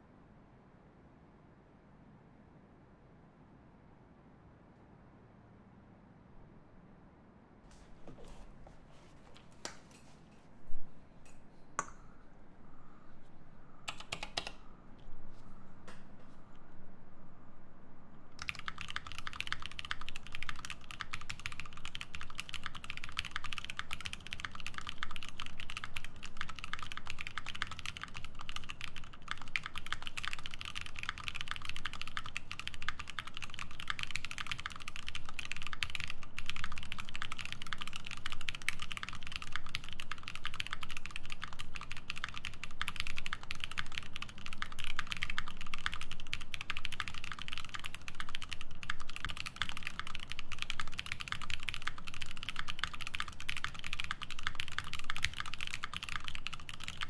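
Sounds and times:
mechanical keyboard typing: 13.9 - 14.6, 18.4 - 57.0.

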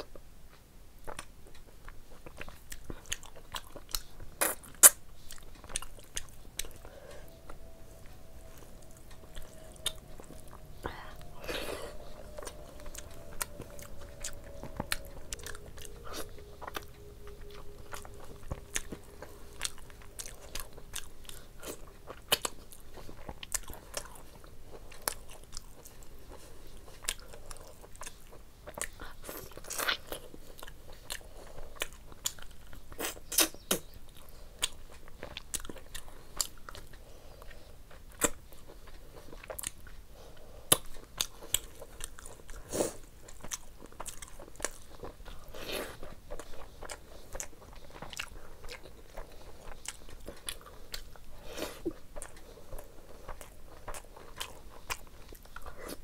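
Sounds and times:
person chewing food: 0.0 - 56.0.

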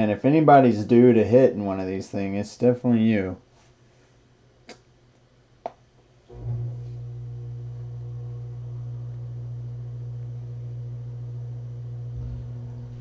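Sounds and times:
steady low hum: 6.0 - 13.0.

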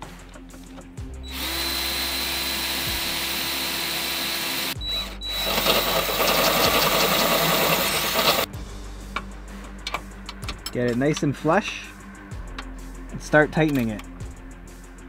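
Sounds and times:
power drill drilling into metal: 1.3 - 8.5.

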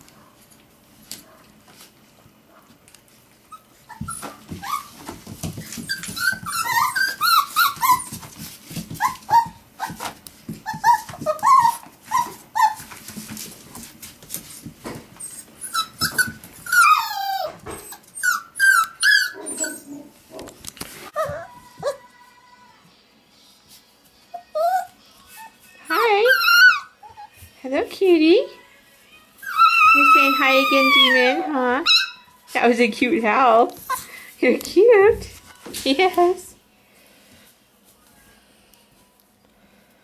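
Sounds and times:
scuffling paws: 0.0 - 22.4, 23.3 - 28.2, 28.9 - 39.1
puppies yipping and whining: 3.4 - 13.1, 14.6 - 20.2, 21.1 - 22.1, 24.3 - 27.6, 29.4 - 32.5
puppy crying: 3.5 - 5.0, 5.8 - 8.3, 9.0 - 12.9, 15.2 - 20.2, 21.1 - 22.1, 24.3 - 27.4, 29.4 - 32.4.

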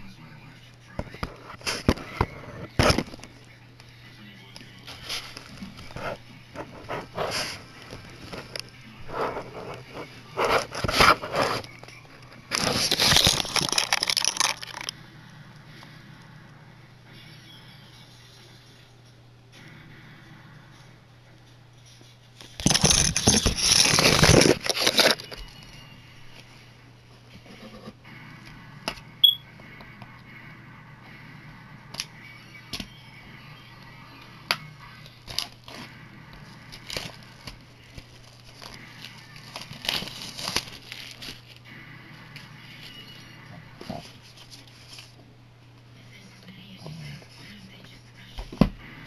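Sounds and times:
packaging rustle: 12.5 - 14.9, 22.6 - 25.4, 39.4 - 41.6
packaging tearing and crinkling: 12.5 - 14.9, 22.6 - 25.4, 39.4 - 41.5.

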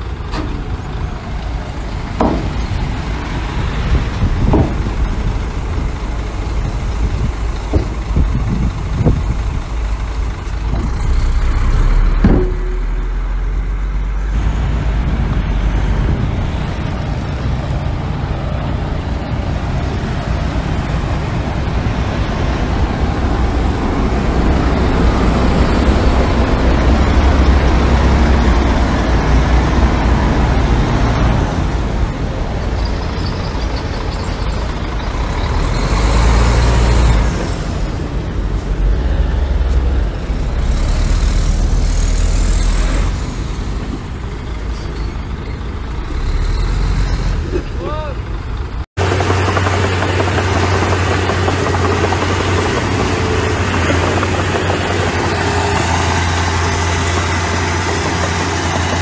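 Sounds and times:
diesel earthmoving machinery: 0.0 - 59.0
sharp knocks: 2.2 - 2.8, 4.4 - 4.9, 12.2 - 13.1.

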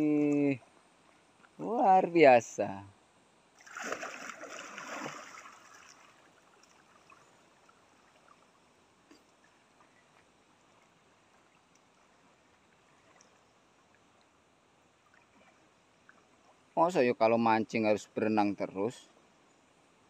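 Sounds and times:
water splashing: 3.6 - 14.2
water lapping: 3.6 - 16.7
small ticks: 11.5 - 12.0.

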